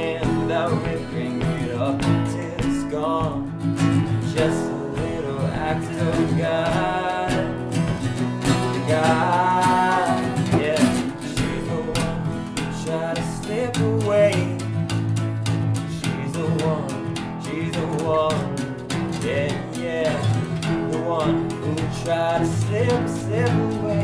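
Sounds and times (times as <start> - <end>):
people singing: 0.0 - 14.6
acoustic guitars strumming: 0.0 - 24.0.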